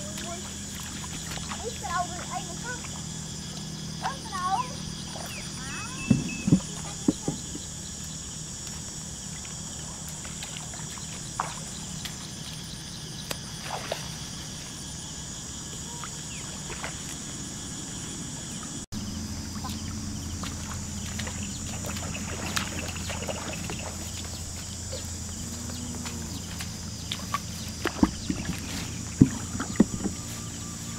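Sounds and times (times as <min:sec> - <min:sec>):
high insect-like drone: 0:00.0 - 0:30.9
low hum: 0:00.0 - 0:30.9
short knocks: 0:06.0 - 0:07.7.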